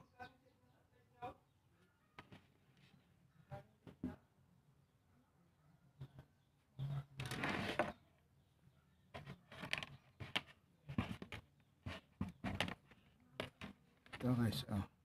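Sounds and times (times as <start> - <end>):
wires scraping on relay: 6.8 - 8.0.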